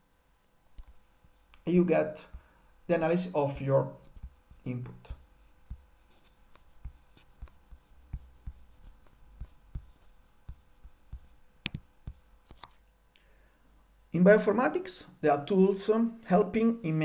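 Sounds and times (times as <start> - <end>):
faint taps and knocks: 4.1 - 12.7.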